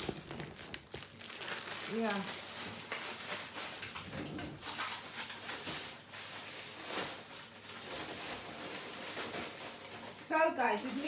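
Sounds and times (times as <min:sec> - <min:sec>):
groceries knocking: 0:00.0 - 0:11.0
plastic bags rustling: 0:00.0 - 0:11.0.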